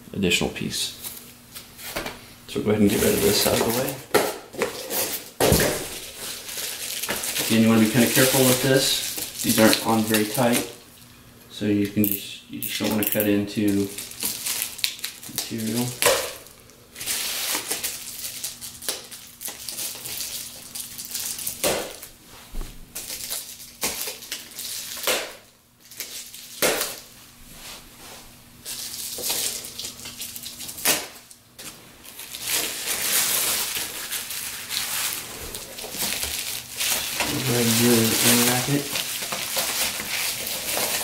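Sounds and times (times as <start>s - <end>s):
plastic wrap rustling and crinkling: 2.8s - 11.1s, 12.8s - 41.0s.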